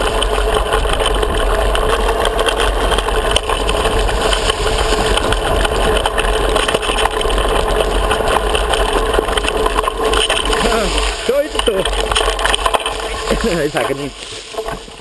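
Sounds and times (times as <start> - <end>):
bike clicks and rattles: 0.0 - 15.0
steady rush: 0.0 - 15.0.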